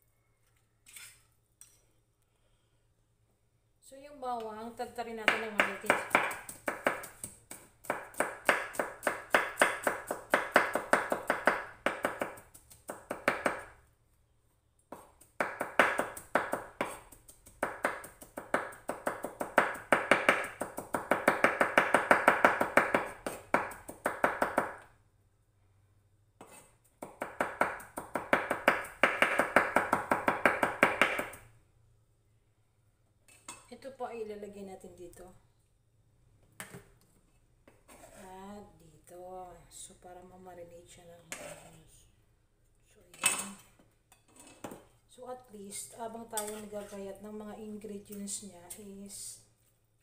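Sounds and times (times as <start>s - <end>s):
knife chopping on wooden board: 5.3s - 13.7s, 14.9s - 24.8s, 26.4s - 31.4s.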